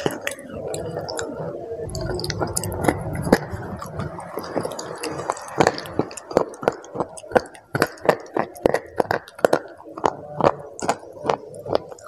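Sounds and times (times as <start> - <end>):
crunching and chewing: 0.0 - 12.0
chocolate bar snapping bites: 4.7 - 12.0.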